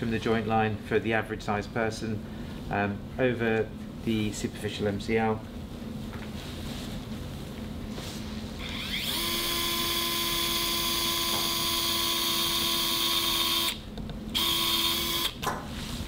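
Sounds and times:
surgical drill motor whine: 8.6 - 15.4.

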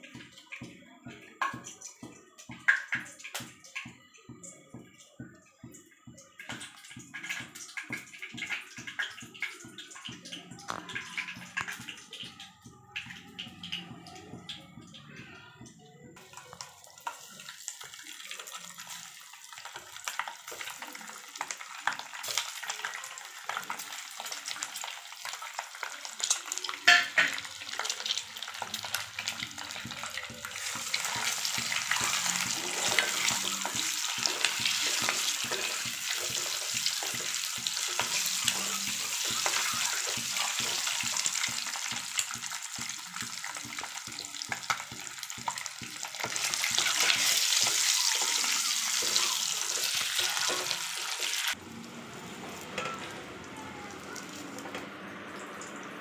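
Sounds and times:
eggs sizzling in hot oil: 6.4 - 12.2, 16.2 - 51.6.

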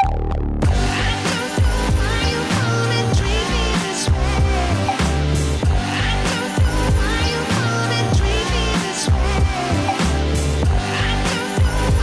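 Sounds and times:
deep bass line: 0.0 - 12.0
electronic music with drum beat: 0.0 - 12.0.

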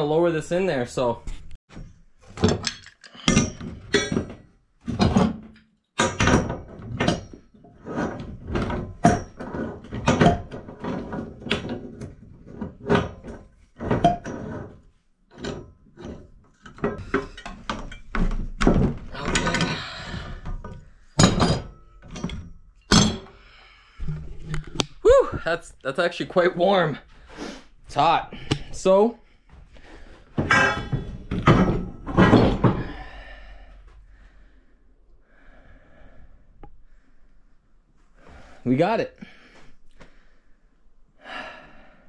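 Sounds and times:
metal pipe clanking: 2.3 - 11.8, 12.9 - 14.5, 15.3 - 23.4, 30.3 - 34.4.

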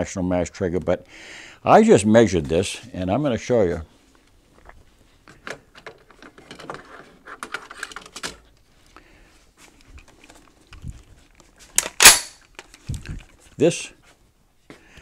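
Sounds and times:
tool handling noise: 5.2 - 8.5, 9.6 - 13.6.

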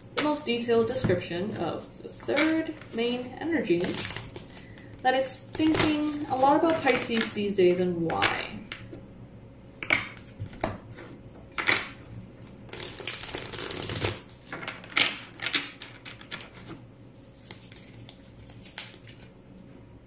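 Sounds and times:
cards being shuffled: 12.7 - 19.3.

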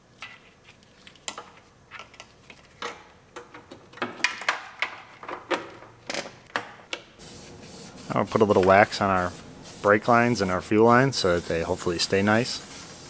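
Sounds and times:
steady hiss: 7.2 - 13.0.

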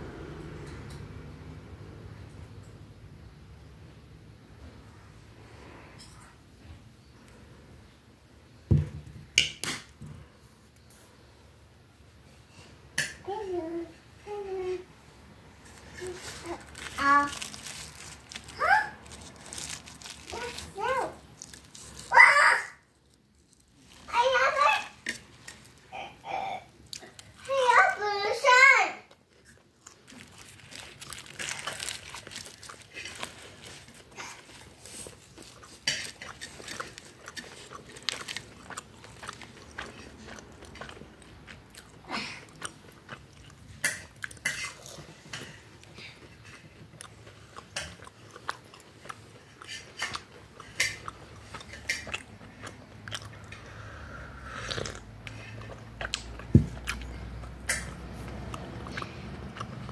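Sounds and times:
crunchy bites and chewing: 15.6 - 24.1, 29.4 - 53.8, 54.4 - 59.9.

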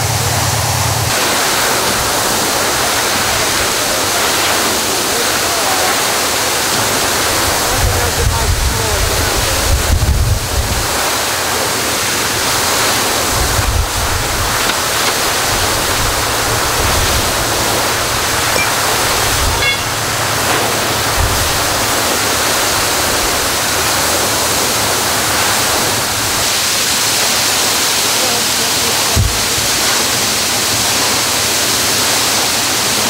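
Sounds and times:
water gushing from hydrant: 0.0 - 33.0.

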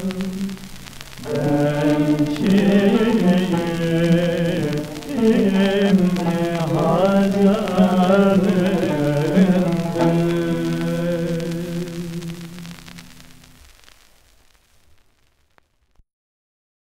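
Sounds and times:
ornamented singing: 0.0 - 13.4
record surface crackle: 0.0 - 16.0.

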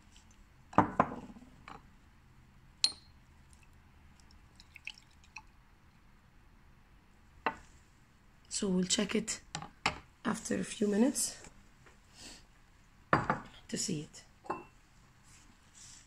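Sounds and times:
glassy ring: 2.8 - 3.2.

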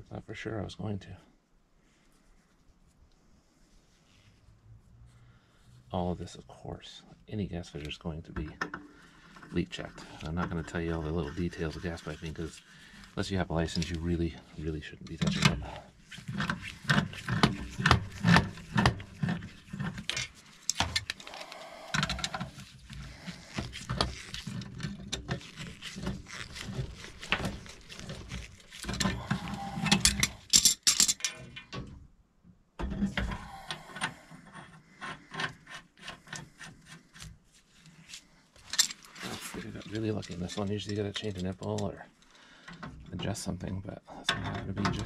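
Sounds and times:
pliers clicking on pipe fittings: 25.2 - 31.8.

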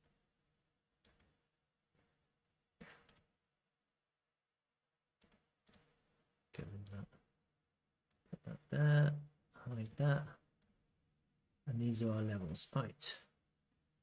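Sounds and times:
computer mouse clicks: 1.0 - 1.3, 2.8 - 3.3, 5.2 - 5.9.

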